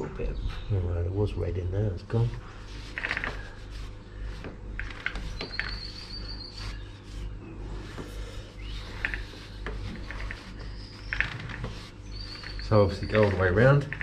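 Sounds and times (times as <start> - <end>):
low steady hum: 0.0 - 14.0
cloth rubbing on chain: 2.2 - 7.4, 8.7 - 13.7.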